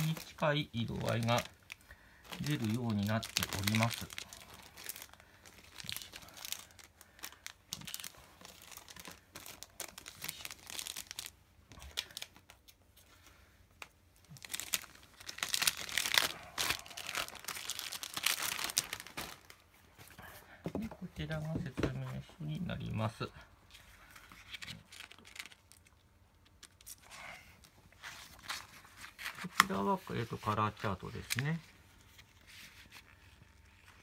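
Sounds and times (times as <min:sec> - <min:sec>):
plastic bags crinkling: 0:00.0 - 0:12.7, 0:14.2 - 0:19.7, 0:24.2 - 0:27.1.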